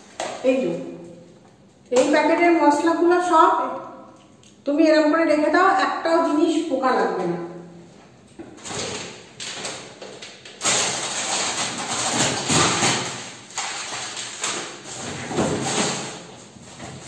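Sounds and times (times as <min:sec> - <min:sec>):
plastic food packets rustling: 0:08.6 - 0:17.0.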